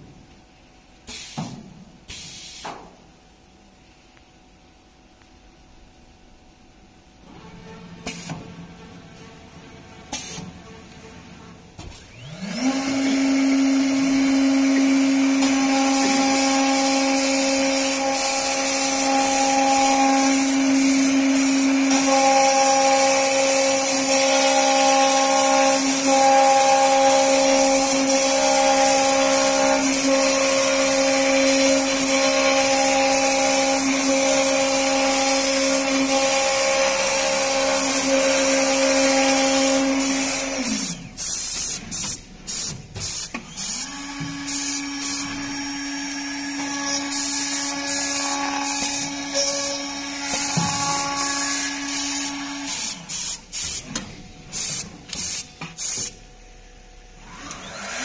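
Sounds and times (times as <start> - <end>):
drilling machine motors whining: 10.1 - 56.1, 57.2 - 58.0
drill bits cutting board: 12.0 - 42.2.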